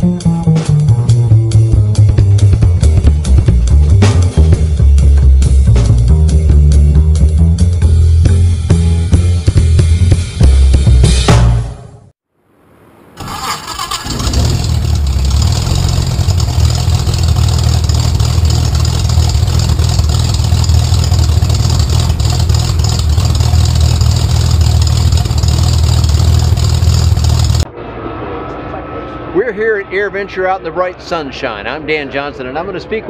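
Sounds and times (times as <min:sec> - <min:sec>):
aircraft engine starting and idling: 0:13.2 - 0:29.3.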